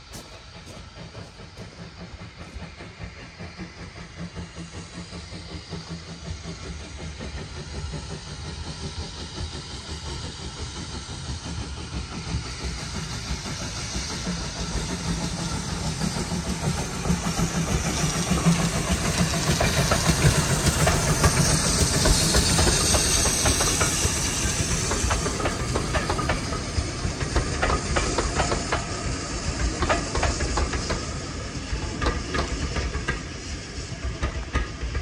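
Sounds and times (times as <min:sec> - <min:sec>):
hiss of steam: 0:00.0 - 0:35.0
train rumble: 0:00.0 - 0:35.0
wheels clicking over rail joints: 0:15.2 - 0:31.2.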